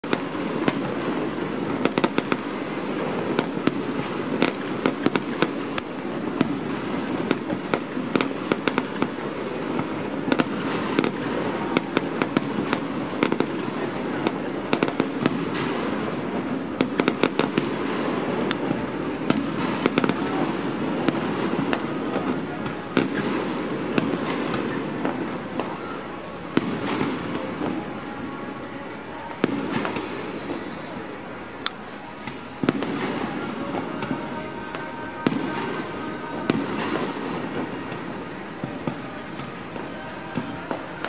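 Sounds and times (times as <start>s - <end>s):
fireworks bursting: 0.0s - 41.0s
fireworks crackling: 0.0s - 41.0s.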